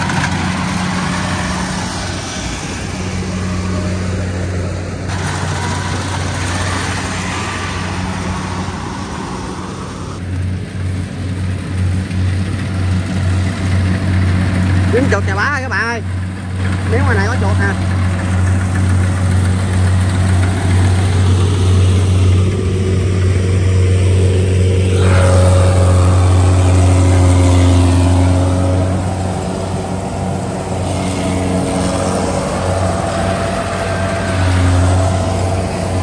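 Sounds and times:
harvester engine humming: 0.0s - 36.0s.

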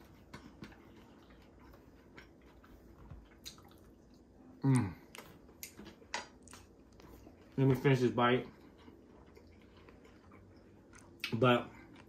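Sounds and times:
wet mouth sounds while eating: 0.0s - 7.6s
man humming mmm: 4.6s - 5.1s.

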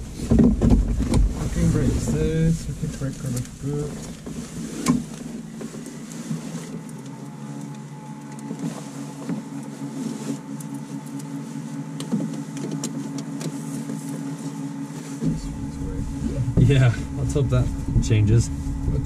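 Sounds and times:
steady electric hum: 0.0s - 19.0s.

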